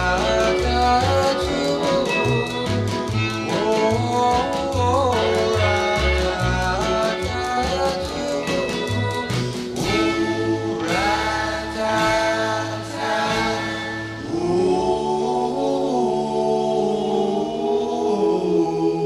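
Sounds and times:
light band backing: 0.0s - 14.5s
male vocal group harmony singing: 0.0s - 19.0s.

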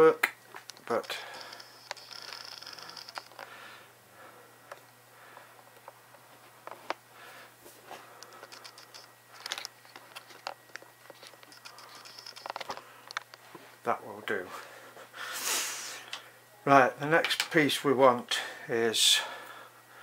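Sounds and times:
hands handling camera: 8.3s - 13.4s.

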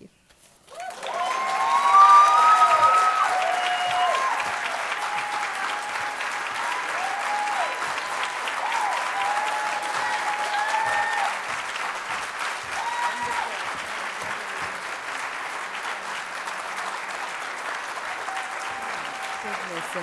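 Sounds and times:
audience clapping: 0.0s - 20.0s
whoops and cheers: 0.7s - 11.6s, 12.6s - 13.7s, 18.1s - 19.6s.

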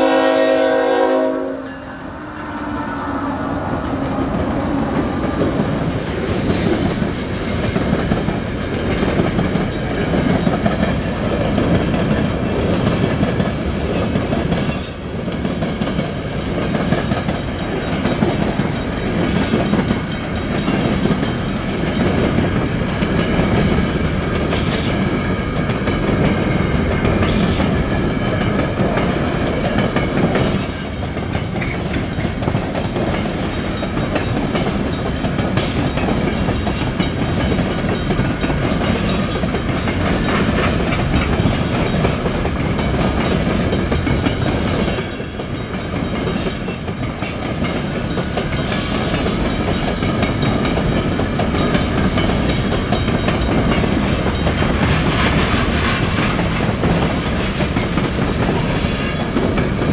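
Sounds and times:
train wheels clicking over rail joints: 3.6s - 59.9s
high wheel squeal: 12.4s - 17.4s, 23.6s - 25.1s, 29.3s - 32.3s, 33.0s - 40.4s, 44.4s - 50.0s, 53.7s - 59.9s.

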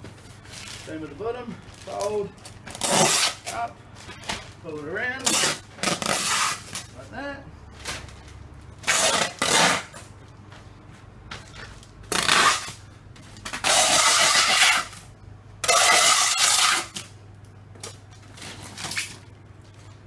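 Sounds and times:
packing tape pulled off tape gun: 2.7s - 3.6s, 5.2s - 6.9s, 8.8s - 10.0s, 12.1s - 12.8s, 13.4s - 15.0s, 15.6s - 17.1s.

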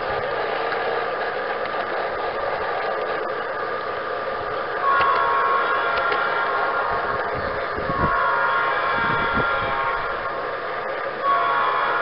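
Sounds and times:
model train whirring on rails: 0.0s - 12.0s
faint clicks: 5.9s - 6.6s.

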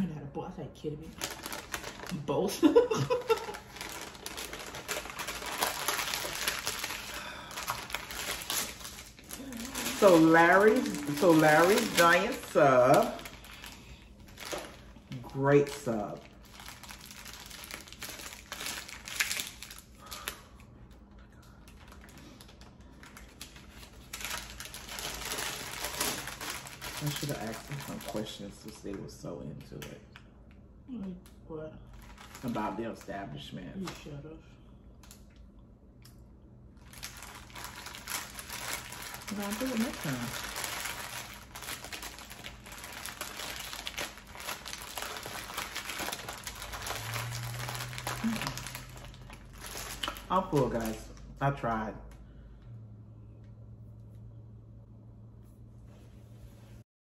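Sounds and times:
paper wrapper rustling and crinkling: 1.1s - 20.6s, 21.4s - 29.8s, 31.9s - 34.2s, 36.8s - 51.7s.

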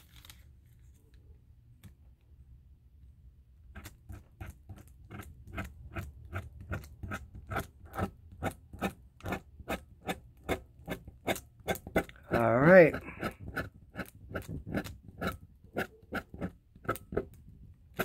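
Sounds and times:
metal tool scraping parchment paper: 3.8s - 17.3s.

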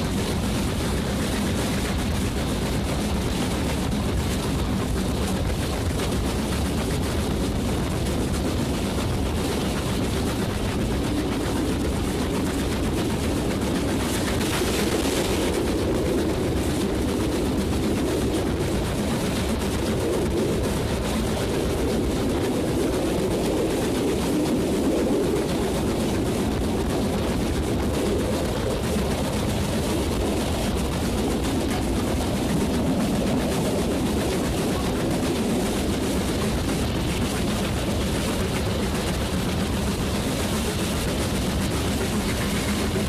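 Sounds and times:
steam locomotive exhaust chuffs: 0.0s - 43.0s
wheel-on-rail rumble: 0.0s - 43.0s
wind on microphone: 0.0s - 43.0s.

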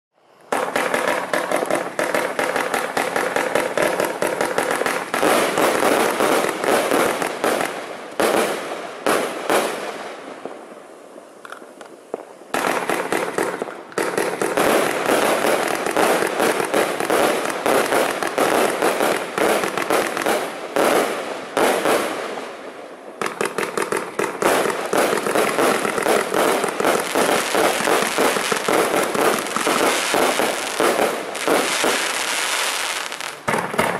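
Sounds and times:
firework cake firing: 0.5s - 9.9s, 23.2s - 33.9s.

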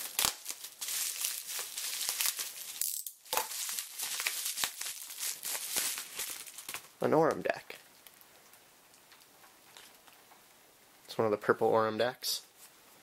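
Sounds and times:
bubble wrap crinkling: 0.0s - 10.2s.

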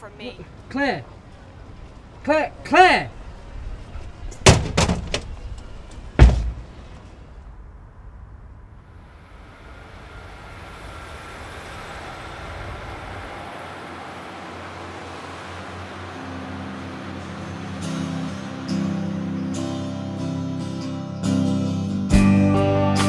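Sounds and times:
passing train rush: 0.0s - 22.2s
loud bangs: 6.2s - 7.2s.

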